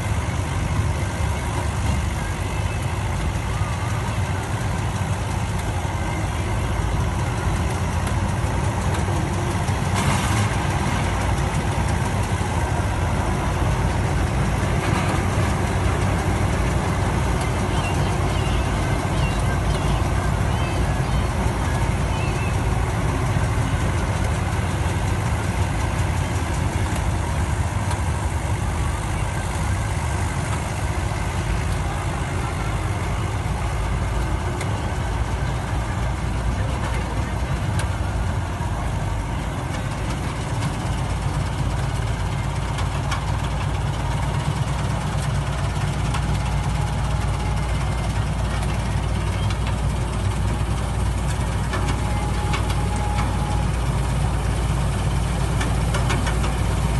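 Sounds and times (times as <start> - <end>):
harvester engine droning: 0.0 - 56.9.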